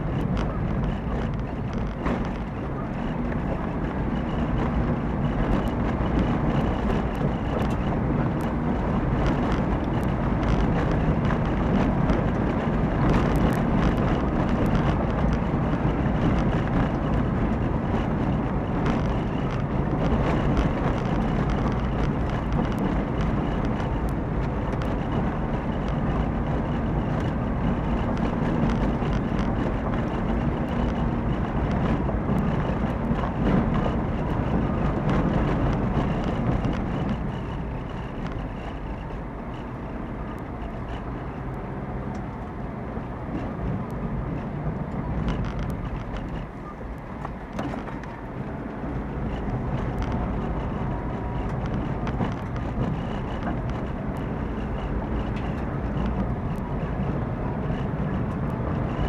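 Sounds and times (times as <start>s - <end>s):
car engine hum: 0.0s - 59.0s
tyre and road noise: 0.0s - 59.0s
small clicks and knocks: 44.9s - 48.2s.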